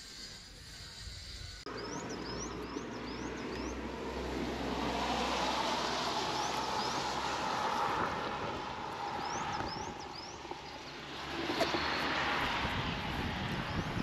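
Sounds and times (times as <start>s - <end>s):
distant motor hum: 0.0s - 14.0s
small birds chirping: 0.7s - 3.8s, 9.0s - 12.2s.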